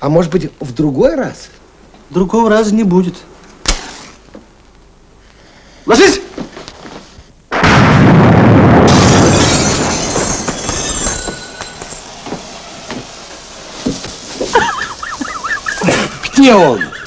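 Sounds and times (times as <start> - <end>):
firework blast: 7.5 - 16.2
scattered knocks and clatters: 9.8 - 13.1.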